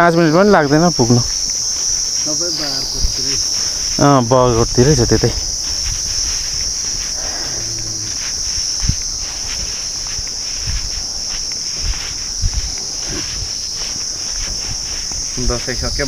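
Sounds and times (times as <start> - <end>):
high-pitched insect chorus: 0.0 - 16.0
soft low thumps: 2.9 - 16.0.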